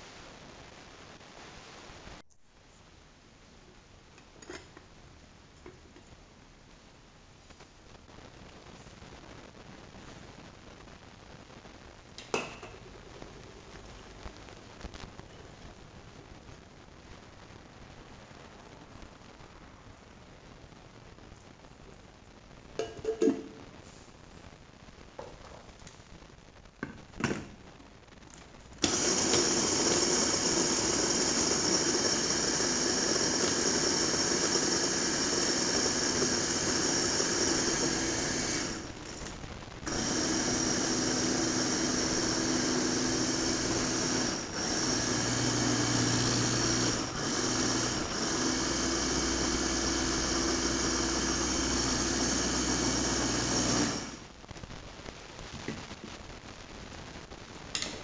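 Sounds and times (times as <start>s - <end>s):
food chopper motor whining: 28.8s - 39.2s, 39.9s - 54.2s.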